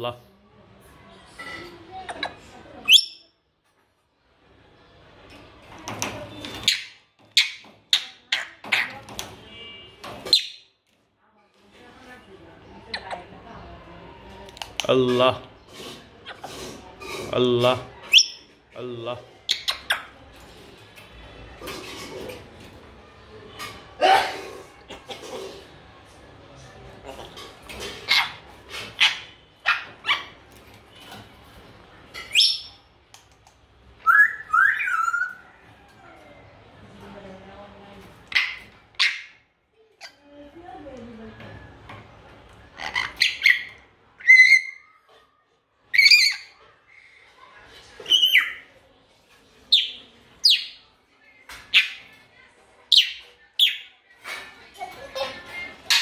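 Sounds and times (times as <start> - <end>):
parrot calling: 34.0 - 35.4, 38.2 - 40.2, 42.7 - 45.0, 45.9 - 46.6.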